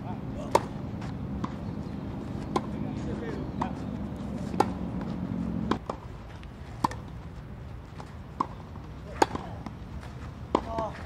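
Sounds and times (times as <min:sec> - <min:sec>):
tennis ball knocks: 0:00.4 - 0:01.7, 0:02.4 - 0:06.0, 0:06.8 - 0:07.1, 0:08.4 - 0:09.8.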